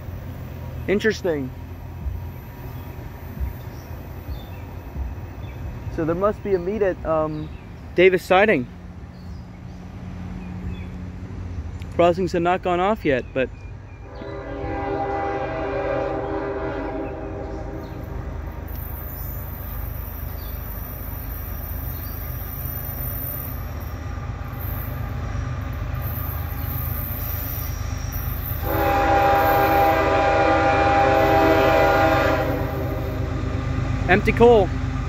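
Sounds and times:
train rumbling: 0.0 - 35.0
locomotive air horn blast: 14.0 - 18.0, 28.6 - 33.5.

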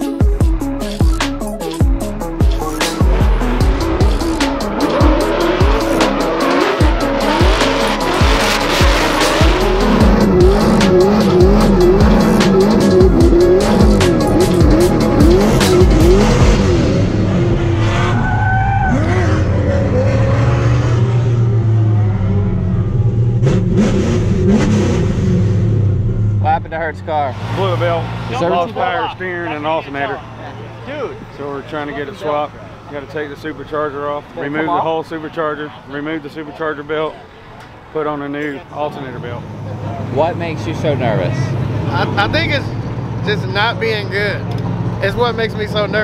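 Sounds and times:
music with a steady beat: 0.0 - 16.9
car engine revving hard: 2.4 - 29.0.

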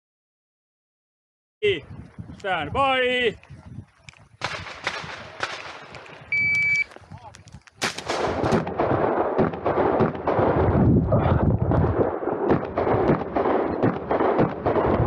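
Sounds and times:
shotgun shots: 4.4 - 6.8, 7.8 - 10.9, 11.8 - 15.0
shot timer beep: 6.3 - 6.9.

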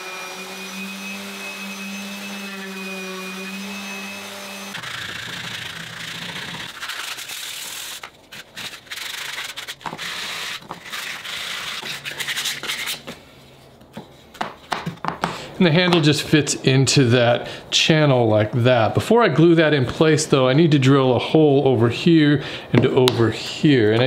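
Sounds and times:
orbital sander humming: 0.0 - 6.8
hand sanding wood: 0.0 - 13.0.

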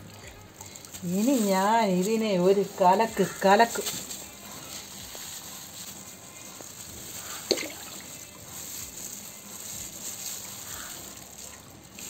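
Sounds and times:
liquid sloshing in a bucket: 7.1 - 8.4.

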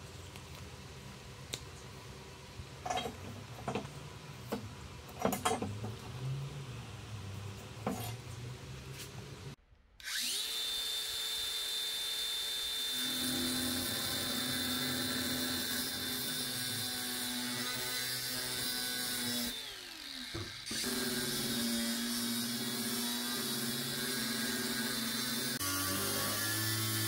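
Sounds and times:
angle grinder whining: 10.0 - 27.0
grinder cutting steel: 10.0 - 27.0.

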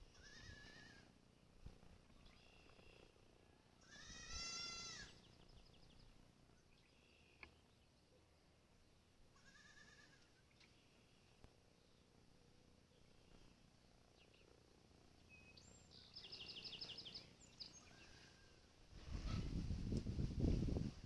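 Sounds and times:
high-pitched animal calls: 0.1 - 1.1.

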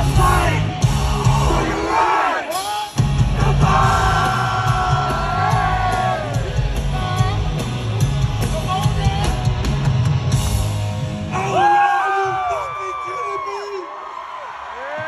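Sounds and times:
heavy bass beat: 0.0 - 2.0, 3.0 - 11.3.

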